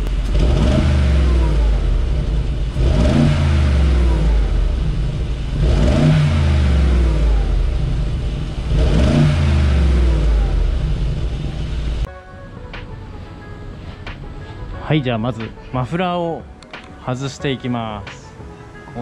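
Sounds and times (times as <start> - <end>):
car engine revving and idling: 0.0 - 12.1.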